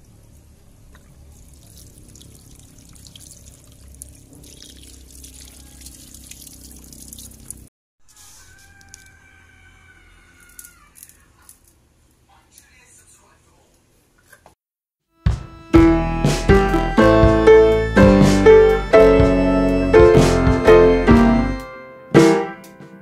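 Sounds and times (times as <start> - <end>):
tap water splashing: 0.9 - 7.7.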